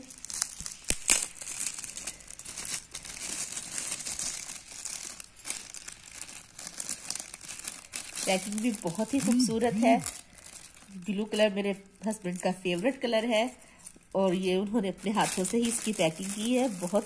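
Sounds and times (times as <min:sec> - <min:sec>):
metallic gift wrap crinkling: 0:00.0 - 0:17.0.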